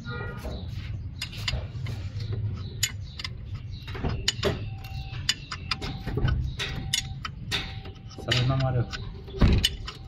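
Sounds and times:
metal tools clinking: 2.6s - 10.0s.

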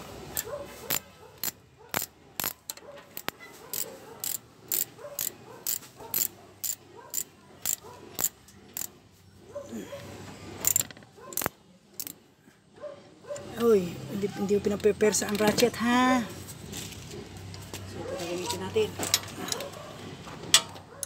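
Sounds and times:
ratchet wrench clicking: 0.3s - 9.0s, 10.6s - 12.2s.

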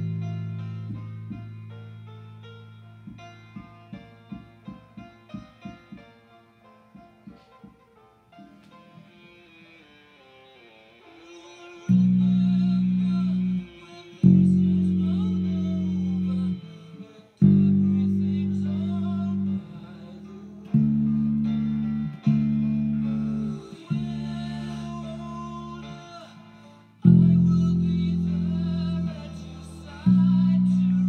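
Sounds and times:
electric bass plucked notes: 0.0s - 5.9s, 11.9s - 31.0s
song with singing: 11.0s - 31.0s.

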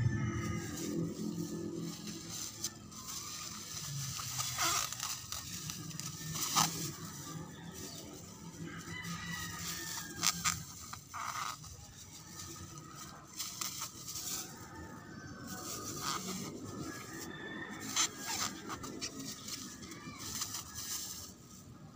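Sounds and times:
plastic bag rustling and crinkling: 0.0s - 21.9s.

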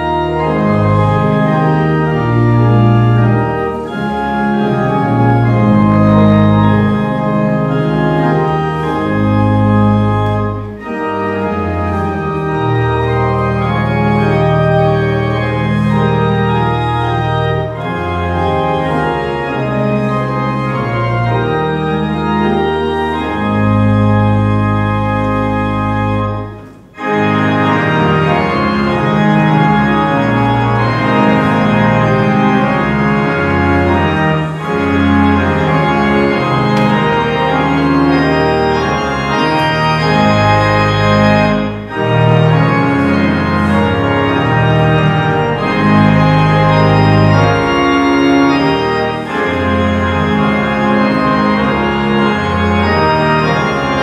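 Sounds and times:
church organ chords: 0.0s - 54.0s.

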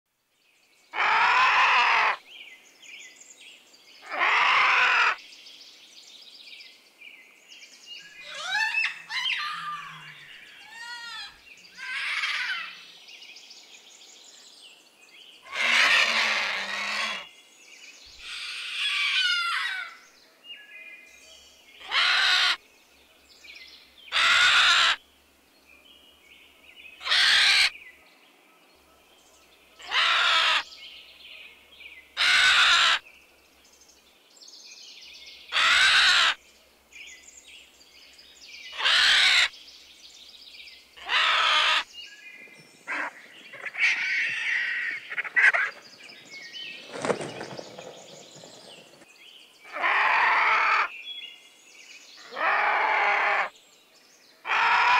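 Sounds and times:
vulture rasping calls: 1.0s - 2.2s, 4.1s - 5.2s, 15.4s - 17.3s, 21.8s - 22.6s, 24.1s - 25.0s, 27.0s - 27.7s, 29.8s - 30.6s, 38.8s - 39.5s.

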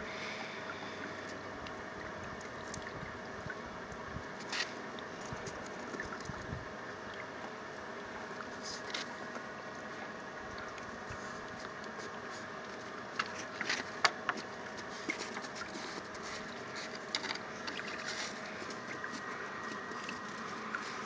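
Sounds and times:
steady outdoor hiss: 0.0s - 21.0s.

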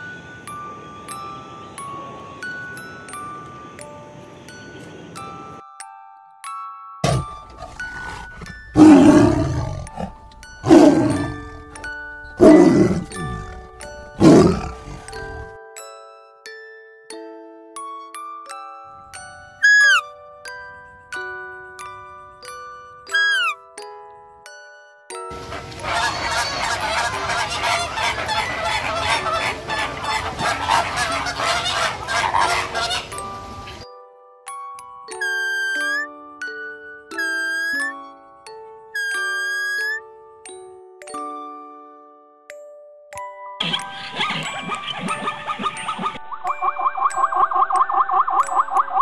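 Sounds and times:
tiger roaring: 7.0s - 11.6s, 12.4s - 13.6s, 14.2s - 15.4s
flamingos honking: 23.1s - 23.6s, 25.3s - 33.8s.

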